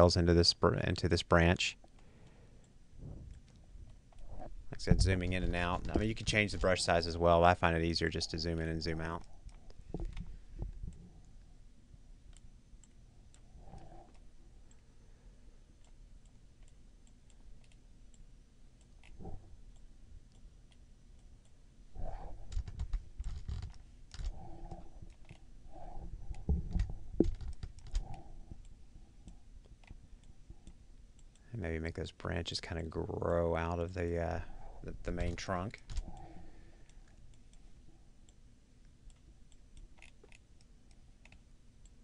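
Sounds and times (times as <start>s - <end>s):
mouse and keyboard clicks: 22.5s - 24.4s, 25.1s - 25.4s, 39.1s - 41.4s.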